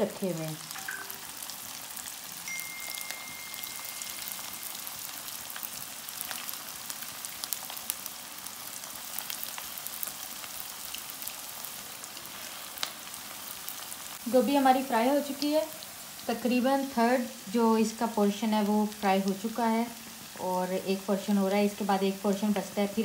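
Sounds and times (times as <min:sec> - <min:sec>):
deep-frying in hot oil: 0:00.0 - 0:23.0.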